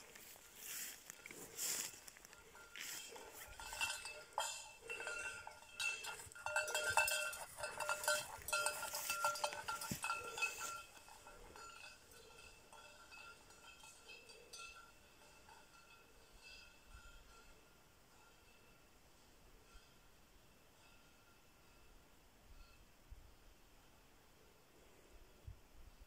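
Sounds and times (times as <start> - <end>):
dog collar bell clanking: 2.4 - 17.6.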